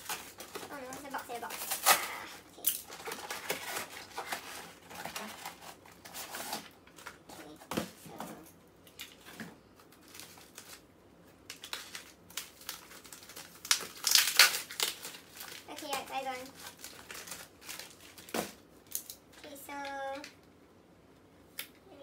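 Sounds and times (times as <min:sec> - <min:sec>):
cardboard and paper rustling: 0:00.0 - 0:10.8.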